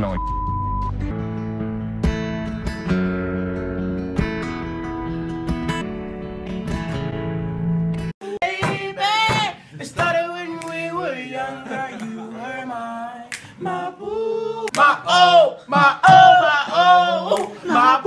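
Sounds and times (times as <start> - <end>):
person singing with vibrato: 8.2 - 18.0.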